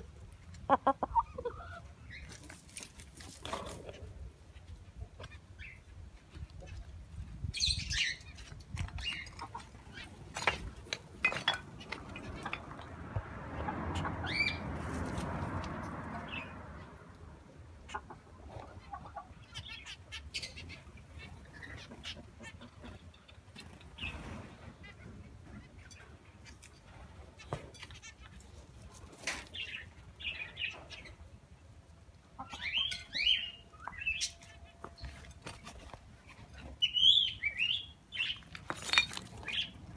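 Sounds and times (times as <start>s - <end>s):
high bird chirps: 32.4s - 35.1s.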